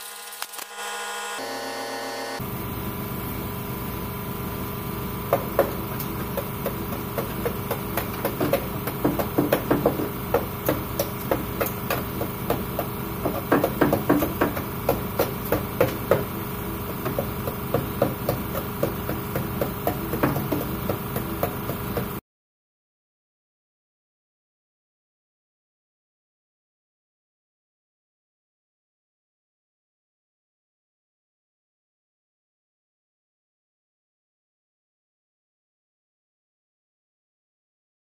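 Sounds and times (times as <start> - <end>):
power tool hammering metal: 0.0 - 2.6, 4.5 - 22.2.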